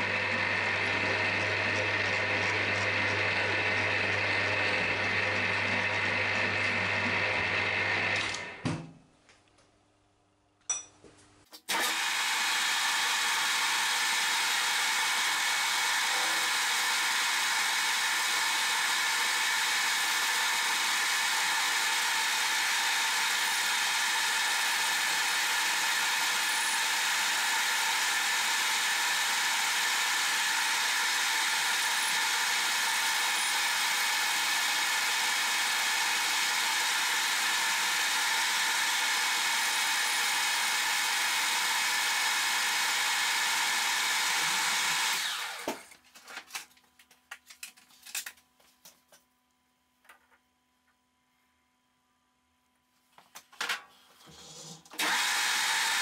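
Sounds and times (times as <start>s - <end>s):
metal lathe cutting whir: 0.0s - 8.6s, 11.7s - 45.8s, 55.0s - 56.0s.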